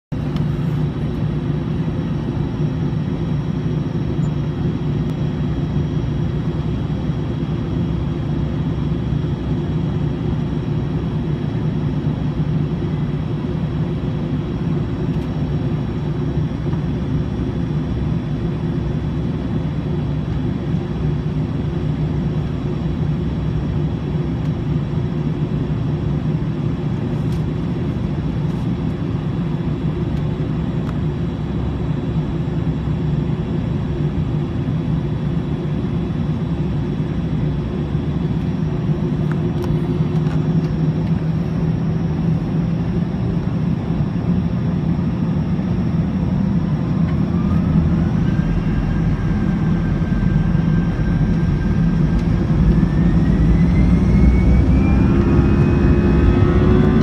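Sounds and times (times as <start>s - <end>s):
aircraft engines idling: 0.1s - 57.0s
faint high whine: 29.3s - 57.0s.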